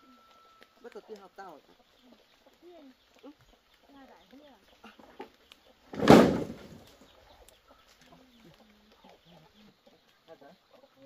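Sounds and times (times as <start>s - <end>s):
bamboo poles crashing: 5.9s - 7.0s.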